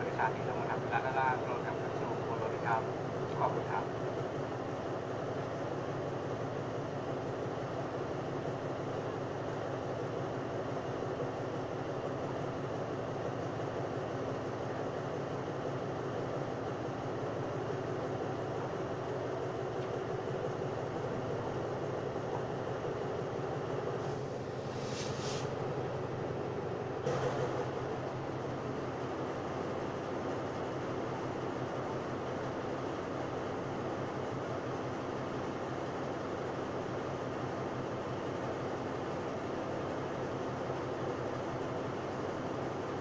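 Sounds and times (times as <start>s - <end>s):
locomotive engine idling: 0.0s - 43.0s
air hiss: 24.0s - 25.6s.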